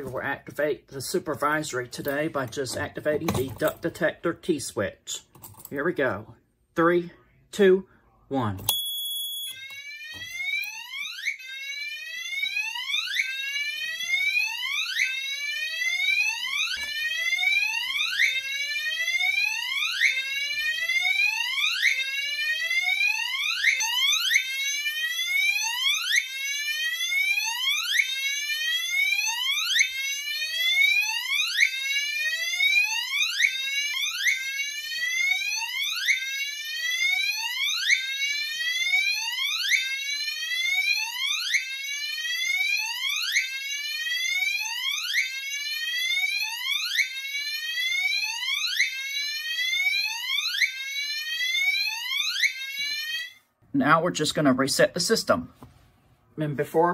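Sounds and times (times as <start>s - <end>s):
short high beep: 8.7s - 9.6s
fire alarm whoop tone: 8.7s - 53.5s.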